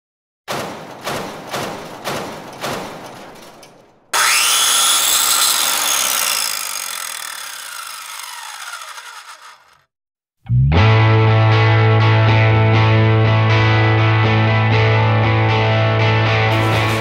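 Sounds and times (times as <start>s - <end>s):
sharp knocks: 0.5s - 4.2s
circular saw whining: 4.1s - 9.9s.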